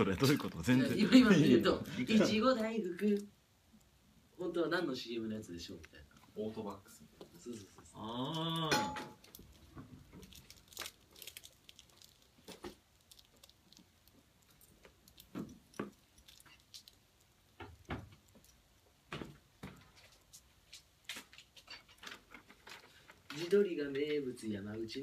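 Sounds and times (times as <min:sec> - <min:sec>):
hands fiddling with wrapped item: 0:05.7 - 0:24.2.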